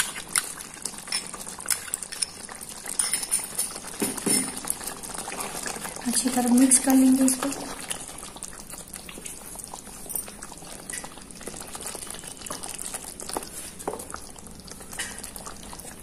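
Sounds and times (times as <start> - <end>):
wooden spatula stirring: 1.0 - 16.0
gravy bubbles popping: 3.7 - 16.0.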